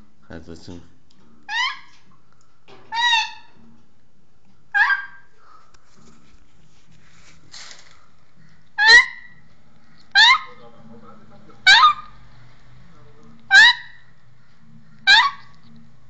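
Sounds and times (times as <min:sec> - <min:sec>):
parrot honking calls: 0:01.5 - 0:02.0, 0:02.9 - 0:03.6, 0:04.7 - 0:05.3, 0:08.8 - 0:10.7, 0:11.5 - 0:12.5, 0:13.4 - 0:15.8.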